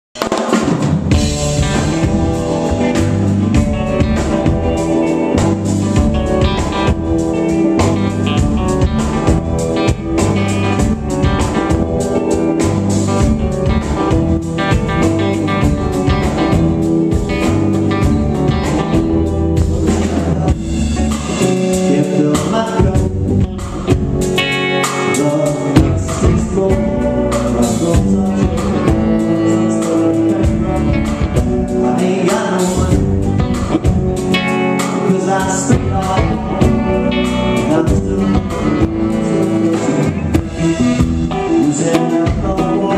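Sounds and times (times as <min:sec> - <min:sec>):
live rock band playing: 0:00.2 - 0:42.9.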